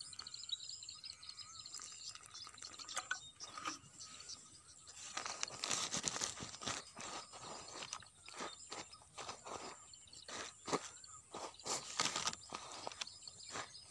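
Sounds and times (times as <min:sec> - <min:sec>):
water dribbling from plastic bottle: 0:00.1 - 0:03.8.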